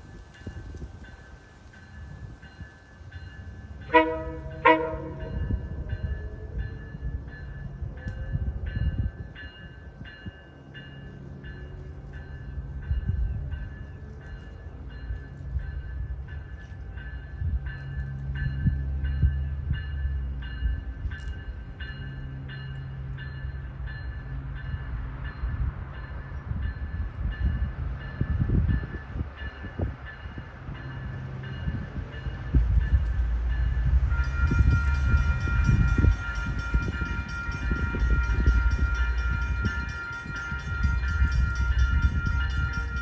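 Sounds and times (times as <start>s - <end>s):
train rumble: 0.0s - 43.0s
crossing bell dinging: 0.3s - 43.0s
train horn: 3.8s - 6.8s, 33.3s - 43.0s.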